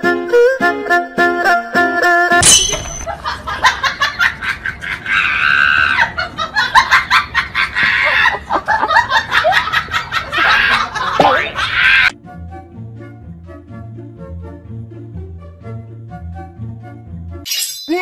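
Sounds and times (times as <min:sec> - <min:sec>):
people laughing loudly: 0:03.1 - 0:12.1.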